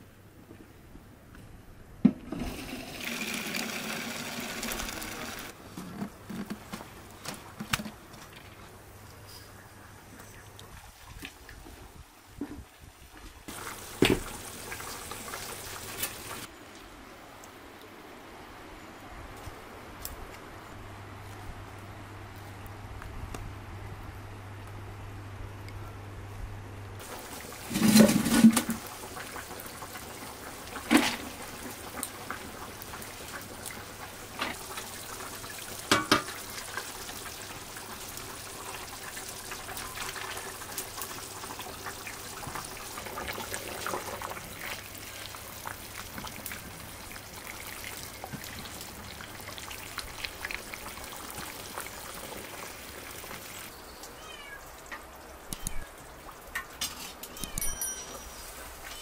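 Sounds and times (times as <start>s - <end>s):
fire hissing and crackling: 13.5s - 16.5s, 27.0s - 53.7s
ladle clinking on pot: 57.3s - 58.4s.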